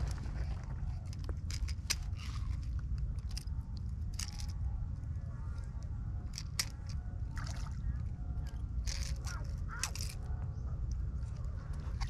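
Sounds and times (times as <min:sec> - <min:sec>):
steady low rumble: 0:00.0 - 0:12.0
pliers clicking and scraping: 0:04.1 - 0:04.6.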